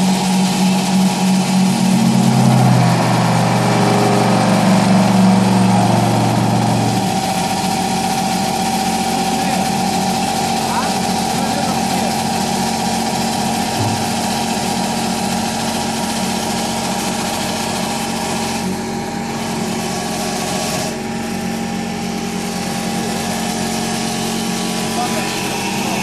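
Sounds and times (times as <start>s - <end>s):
lathe motor hum and whine: 0.0s - 26.0s
cutters hissing shaving wood: 5.9s - 21.2s, 22.2s - 26.0s.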